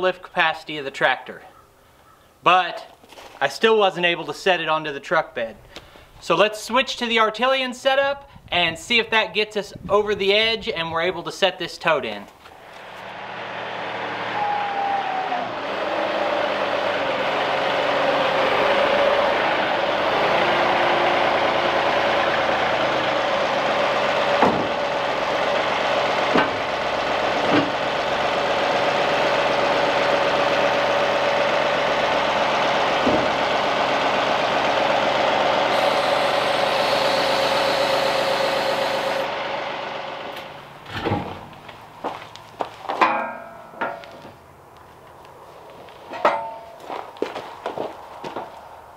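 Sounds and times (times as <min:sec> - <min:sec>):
diesel tractor engine running: 0:12.4 - 0:42.9
steady whine: 0:12.5 - 0:40.8
sharp knocks: 0:24.4 - 0:24.8
metal clanks: 0:43.0 - 0:44.3, 0:46.1 - 0:46.9.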